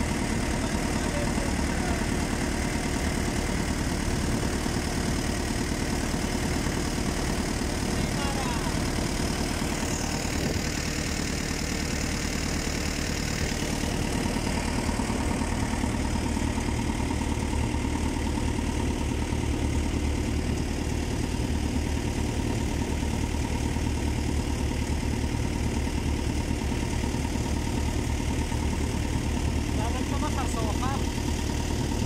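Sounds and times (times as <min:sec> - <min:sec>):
boat engine droning: 0:00.0 - 0:32.0.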